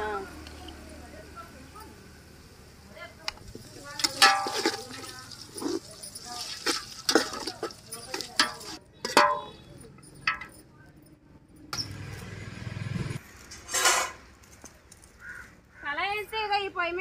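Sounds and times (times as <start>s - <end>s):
metal ladle scraping steel pot: 4.0s - 9.6s, 13.6s - 14.2s.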